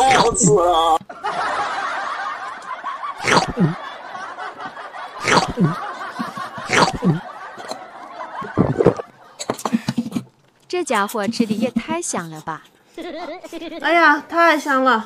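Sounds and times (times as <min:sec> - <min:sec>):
snickering laughter: 0:01.2 - 0:09.4, 0:13.0 - 0:13.8.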